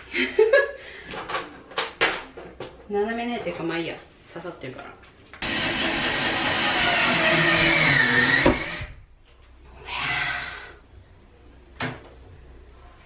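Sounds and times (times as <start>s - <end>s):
cordless drill driving screw: 5.4s - 8.9s.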